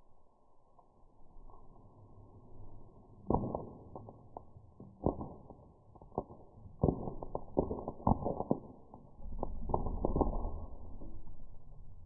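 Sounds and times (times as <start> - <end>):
slowed popcorn pops as low thuds: 3.2 - 11.3.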